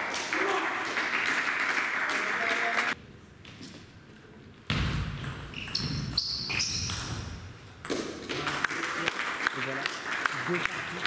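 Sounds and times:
people clapping: 0.0 - 3.0, 8.2 - 11.0
shoes squeaking on floor: 5.5 - 7.4.

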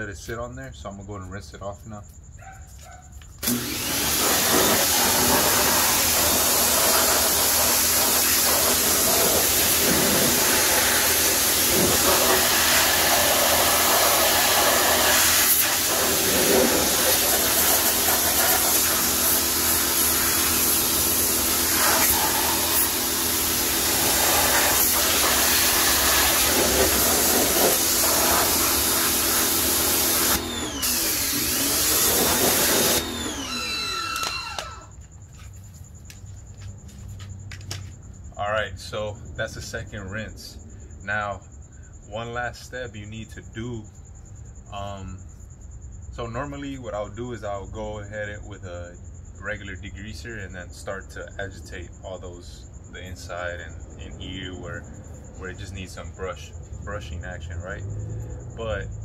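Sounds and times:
pressure washer spraying water: 3.4 - 34.8
pressure washer motor hum: 3.4 - 34.9.

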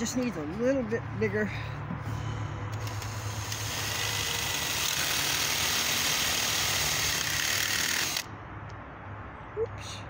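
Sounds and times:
drill boring into metal: 2.8 - 8.2.

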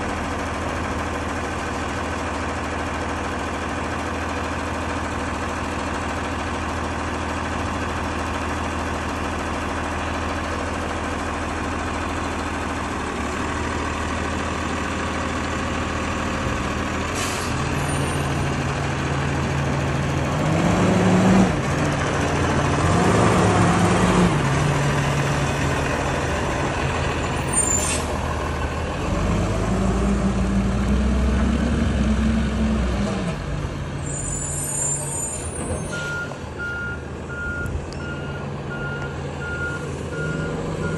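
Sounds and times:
garbage truck diesel engine revving: 0.0 - 34.9, 35.6 - 40.9
air brake hisses: 17.1 - 17.9, 27.5 - 28.2.

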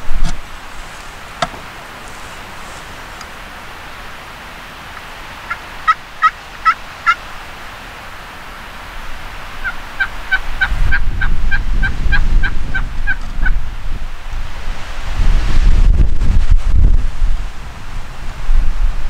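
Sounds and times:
wind rumble on microphone: 0.0 - 1.0, 8.9 - 19.0
turkey yelps: 5.5 - 7.2, 9.6 - 13.6.

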